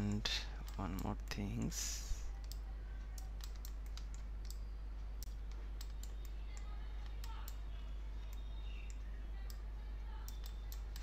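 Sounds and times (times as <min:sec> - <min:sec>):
computer mouse clicks: 0:00.0 - 0:01.3, 0:02.3 - 0:07.6, 0:10.2 - 0:11.0
steady low hum: 0:00.0 - 0:11.0.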